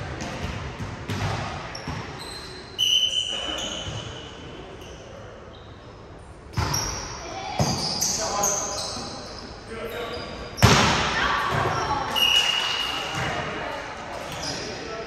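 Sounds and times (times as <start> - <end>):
court noise: 0.0 - 15.0
players' voices: 6.6 - 15.0
loud sudden ball hits: 10.6 - 11.2.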